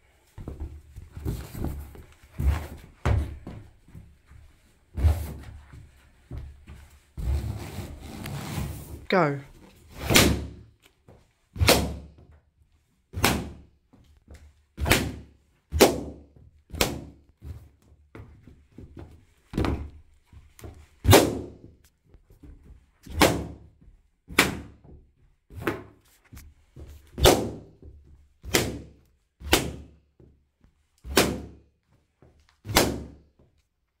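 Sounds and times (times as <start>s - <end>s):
boots knocking on carpet: 0.3s - 4.5s, 5.2s - 6.9s.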